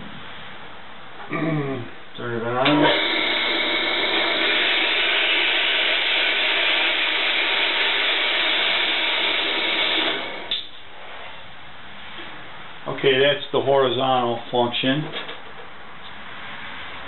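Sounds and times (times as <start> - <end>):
band saw cutting wood: 2.8 - 10.6.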